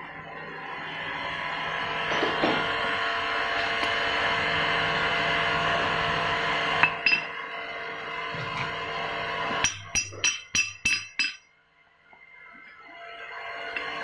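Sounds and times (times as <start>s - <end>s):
steady machine noise: 0.0s - 14.0s
steel bar clinking on metal casing: 9.7s - 11.5s.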